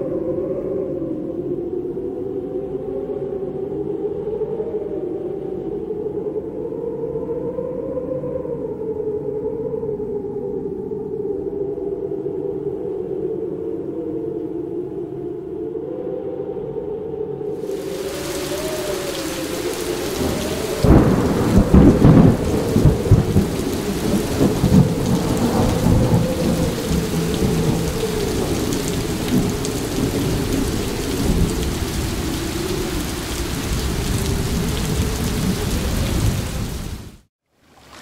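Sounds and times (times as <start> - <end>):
heavy rain: 17.6 - 38.0
thunder rumbling: 17.7 - 37.1.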